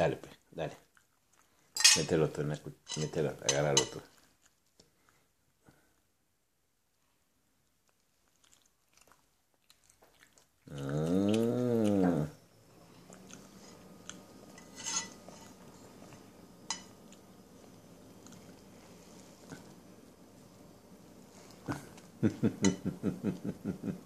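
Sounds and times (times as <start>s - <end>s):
fork clinking on ceramic plate: 1.8s - 2.1s, 2.9s - 4.0s, 14.6s - 15.6s, 16.7s - 17.0s.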